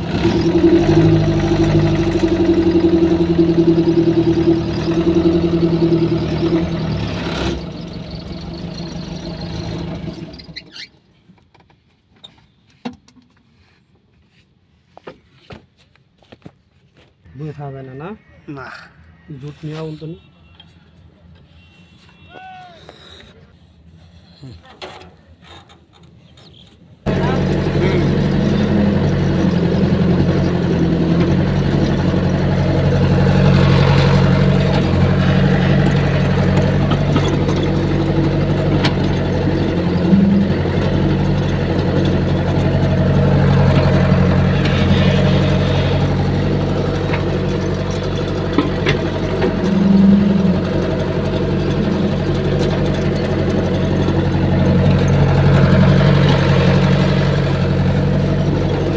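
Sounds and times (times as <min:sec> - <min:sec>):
excavator diesel engine running: 0:00.0 - 0:10.8, 0:27.0 - 0:58.9.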